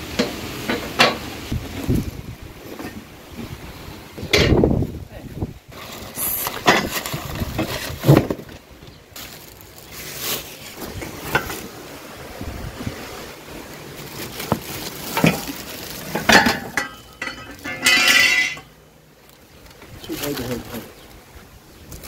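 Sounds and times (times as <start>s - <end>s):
plastic wrapping crackling: 5.7s - 11.8s, 13.4s - 18.6s, 19.2s - 21.2s
metal tubes knocking and clinking: 16.2s - 18.7s.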